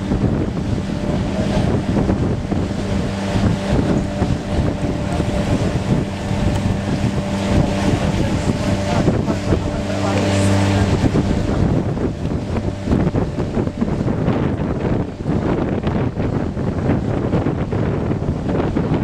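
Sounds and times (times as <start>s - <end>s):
boat engine humming: 0.0s - 19.0s
wind rumbling on microphone: 0.0s - 19.0s.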